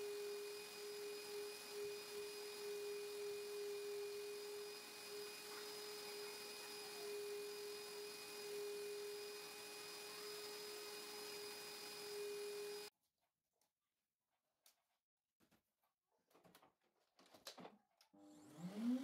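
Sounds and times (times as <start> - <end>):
vacuum cleaner motor running: 0.0 - 12.9, 18.2 - 19.0.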